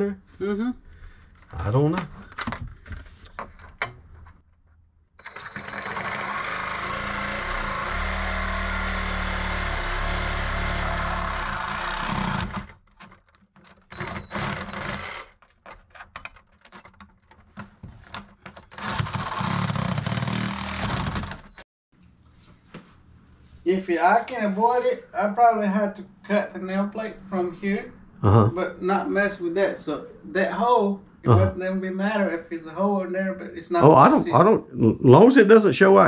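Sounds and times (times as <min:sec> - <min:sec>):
handheld power tool running: 0:05.2 - 0:12.8, 0:18.8 - 0:21.6
handling knocks and rattles: 0:15.4 - 0:18.9.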